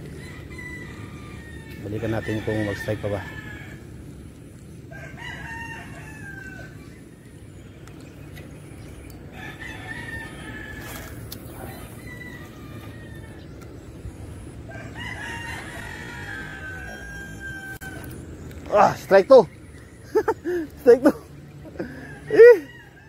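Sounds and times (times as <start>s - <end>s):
rooster crowing: 0.0s - 3.9s, 4.9s - 7.0s, 9.3s - 13.6s, 14.6s - 18.2s, 21.8s - 23.0s.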